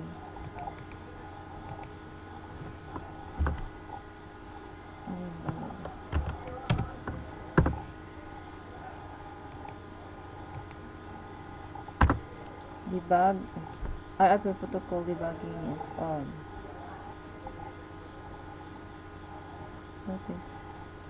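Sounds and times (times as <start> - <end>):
faint steady hum: 0.0 - 21.0
keyboard typing: 2.9 - 3.7, 5.4 - 7.8, 10.5 - 10.8, 12.0 - 12.7.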